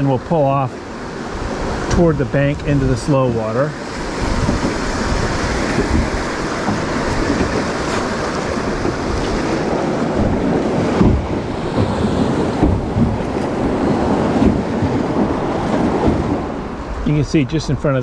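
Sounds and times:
river water rushing: 0.0s - 18.0s
wind buffeting microphone: 0.0s - 18.0s
low thumps: 4.1s - 17.0s.

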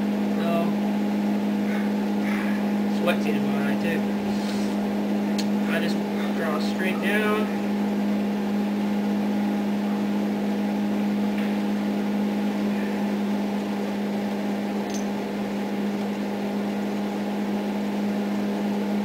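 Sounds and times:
electrical machine hum: 0.0s - 19.0s.

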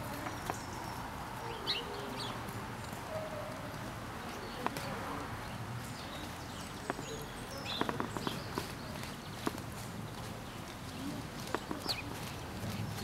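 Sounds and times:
outdoor background: 0.0s - 13.0s
hoofbeats on sand: 5.9s - 13.0s.

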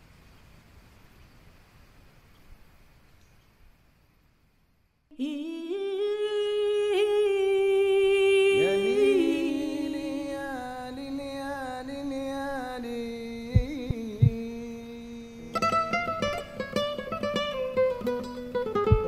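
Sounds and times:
person singing wordless flamenco: 5.1s - 19.0s.

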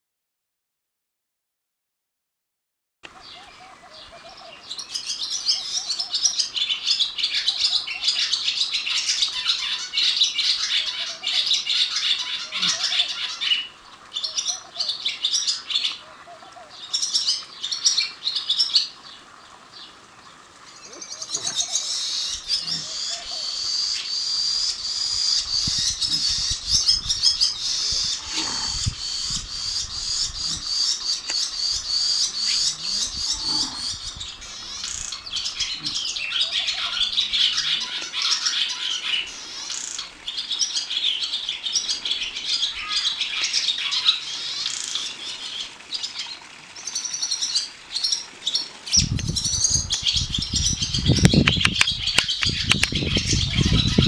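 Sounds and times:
swallows twittering: 20.7s - 40.1s, 49.0s - 54.0s.

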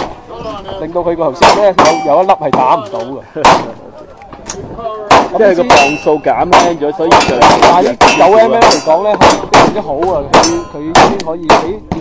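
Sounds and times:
people talking: 0.3s - 12.0s
rapid gunshots: 5.1s - 12.0s.

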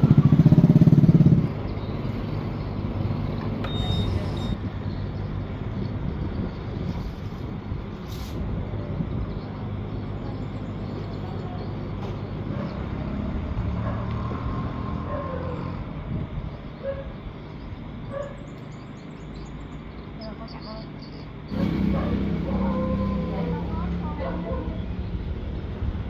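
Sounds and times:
vehicle engine rumbling: 0.0s - 26.0s
brief hiss: 8.0s - 8.4s.

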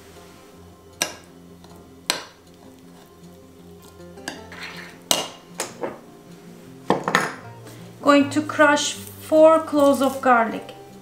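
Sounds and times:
spoon scraping bowl: 2.4s - 5.1s.

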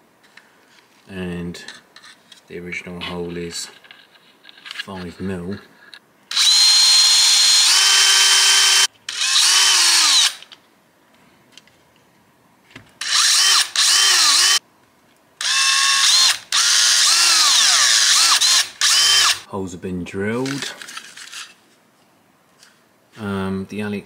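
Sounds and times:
cordless drill boring: 6.3s - 10.4s, 13.0s - 14.6s, 15.4s - 19.4s.

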